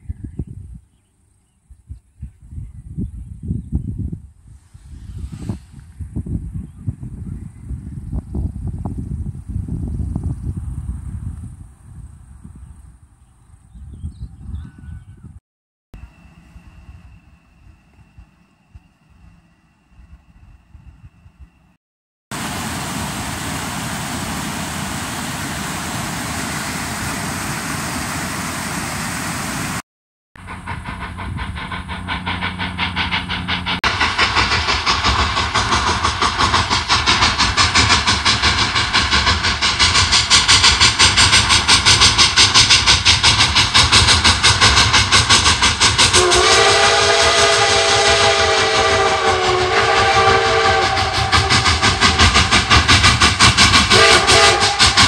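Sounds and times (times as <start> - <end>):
creek water rushing: 22.3 - 29.8
steam locomotive chuffing: 22.3 - 29.8, 30.4 - 55.0
steam whistle blowing: 46.0 - 52.9, 53.8 - 55.0.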